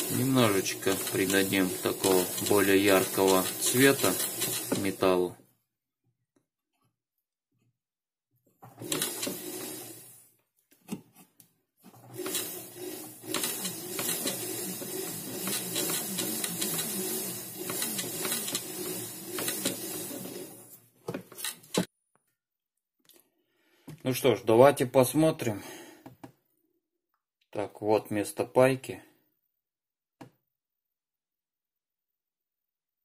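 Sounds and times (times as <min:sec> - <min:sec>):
wire brush scratching metal: 0:00.0 - 0:05.0, 0:12.2 - 0:20.7
small motor whining: 0:12.1 - 0:20.7.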